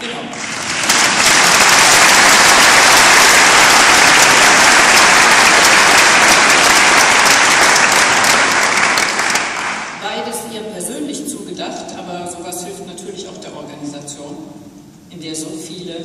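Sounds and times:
audience applauding: 0.3 - 10.0.

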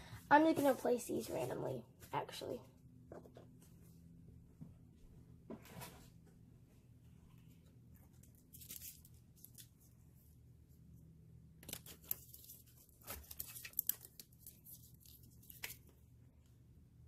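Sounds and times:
decorations rustling and crinkling: 0.3 - 2.6, 6.9 - 10.9, 11.6 - 16.1.

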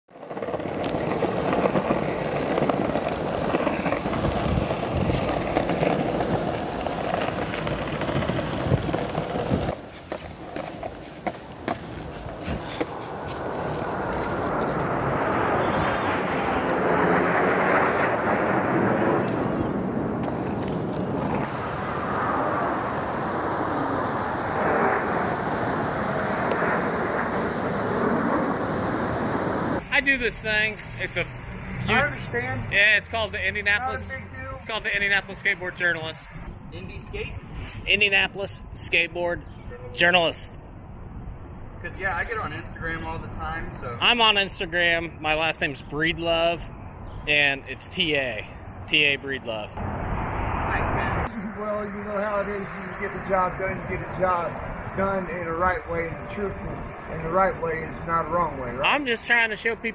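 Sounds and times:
skateboard wheels rolling on bricks: 0.1 - 15.7, 20.2 - 22.2
jets flying over: 0.2 - 37.2, 41.8 - 59.9.

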